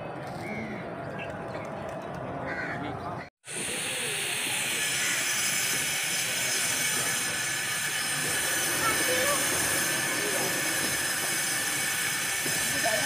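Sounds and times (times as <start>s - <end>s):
steady background noise: 0.0s - 13.0s
crow cawing: 2.5s - 2.8s.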